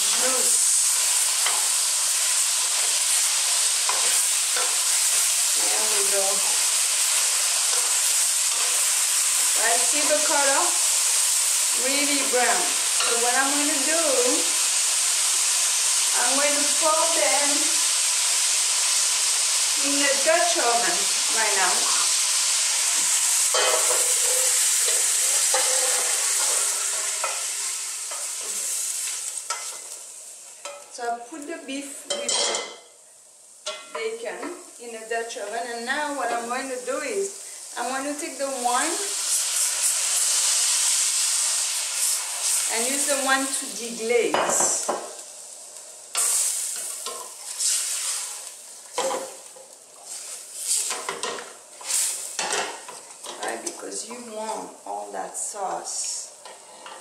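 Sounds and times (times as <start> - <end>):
meat sizzling: 0.0 - 57.0
wooden spoon scraping pan: 22.9 - 29.9.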